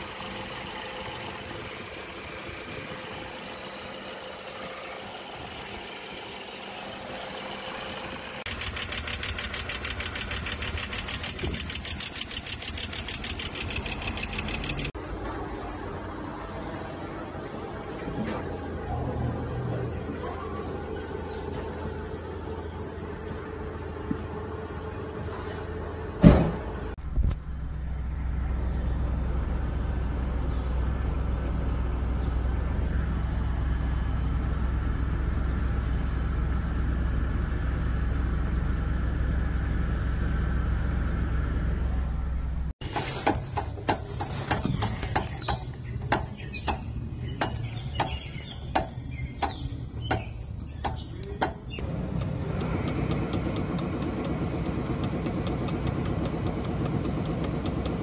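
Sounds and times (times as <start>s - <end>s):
engine running steadily: 0.0s - 58.0s
sharp mechanical clicks and knocks: 8.4s - 15.0s, 43.2s - 58.0s.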